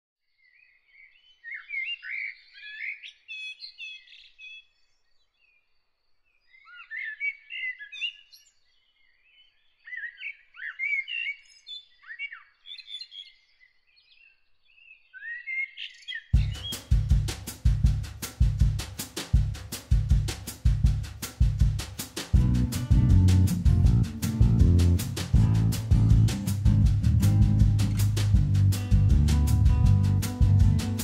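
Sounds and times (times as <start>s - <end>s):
songbird chirping and warbling: 0.2s - 17.2s
music with drum beat: 16.4s - 31.0s.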